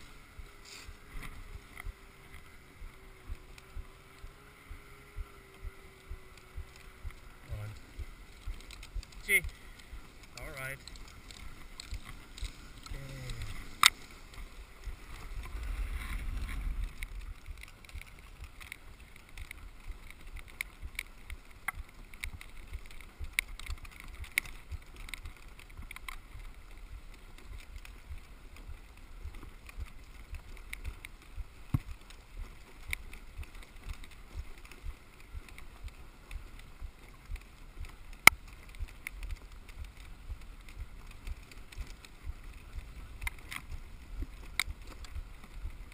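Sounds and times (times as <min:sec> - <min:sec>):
sled frame clicks and knocks: 0:00.0 - 0:45.9
sled runners scraping on snow: 0:00.0 - 0:45.9.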